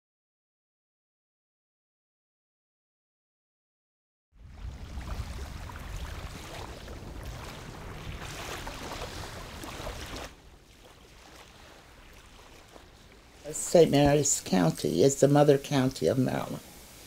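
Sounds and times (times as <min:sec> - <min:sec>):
wind rumbling on microphone: 0:04.4 - 0:14.8
water washing against rocks: 0:04.6 - 0:14.7.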